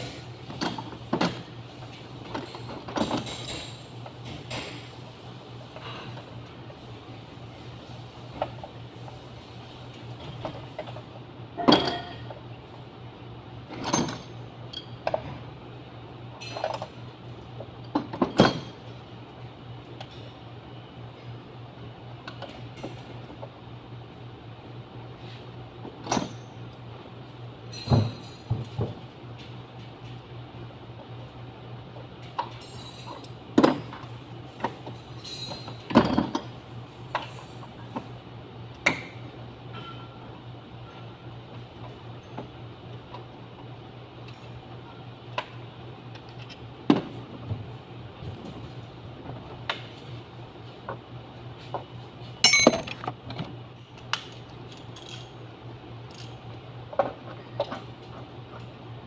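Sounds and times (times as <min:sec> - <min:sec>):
metal tools clinking: 0:52.4 - 0:53.0.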